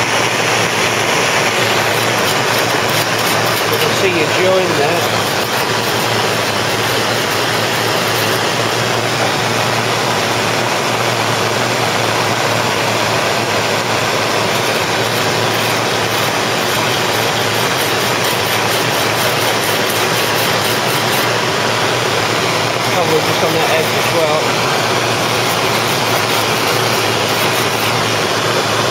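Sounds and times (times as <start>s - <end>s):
blowtorch flame burning: 0.0s - 28.9s
wire brush scrubbing metal: 1.4s - 8.9s, 14.2s - 21.5s, 22.4s - 28.3s.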